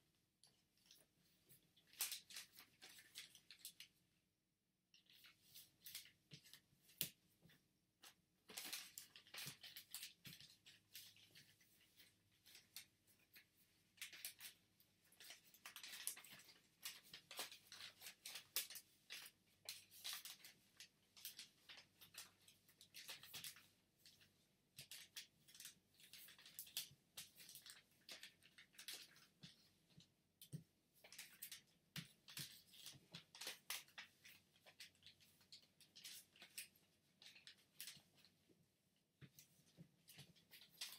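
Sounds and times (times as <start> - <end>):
paper rustling and crinkling: 0.7 - 3.9, 5.0 - 38.4, 39.2 - 40.9.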